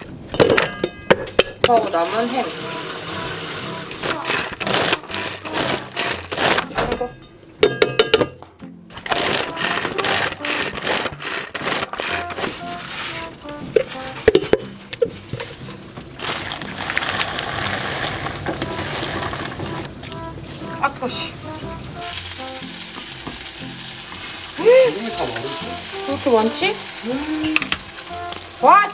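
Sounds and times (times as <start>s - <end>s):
background music: 0.0s - 28.9s
pot of water boiling: 1.7s - 5.0s, 15.1s - 28.9s
food chopper whirring: 2.5s - 6.8s, 8.9s - 13.4s, 16.1s - 19.9s.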